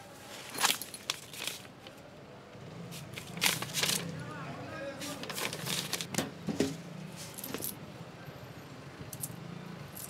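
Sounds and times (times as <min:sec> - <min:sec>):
paper rustling and crinkling: 0:00.2 - 0:02.0, 0:03.0 - 0:04.1, 0:05.0 - 0:06.2.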